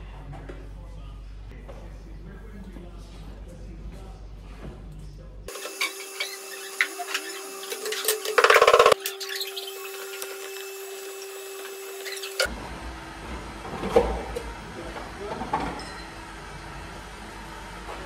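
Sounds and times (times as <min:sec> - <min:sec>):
electric pottery wheel humming: 0:05.5 - 0:15.2.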